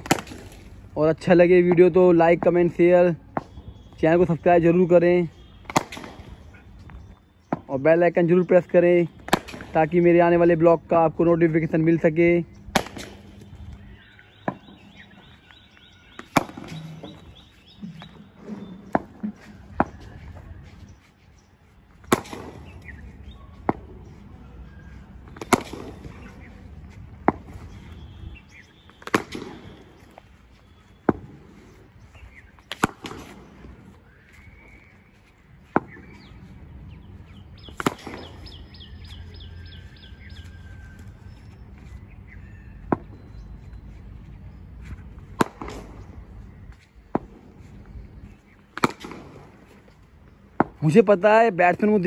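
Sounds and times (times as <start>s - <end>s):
cricket bat hitting ball: 0.0s - 0.6s, 5.6s - 6.4s, 9.2s - 9.8s, 12.8s - 13.4s, 16.1s - 17.3s, 22.1s - 22.9s, 25.3s - 26.4s, 28.9s - 30.0s, 32.7s - 33.7s, 37.7s - 39.0s, 45.4s - 46.0s, 48.8s - 49.6s
birds chirping: 0.0s - 52.0s.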